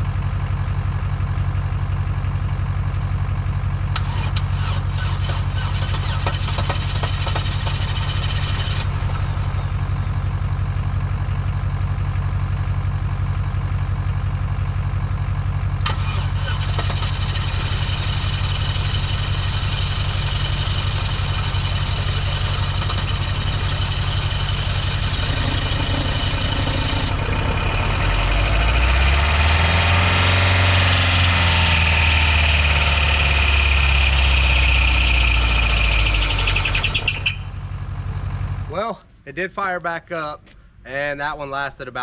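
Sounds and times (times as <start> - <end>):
car engine revving: 3.8 - 10.6, 15.8 - 38.7.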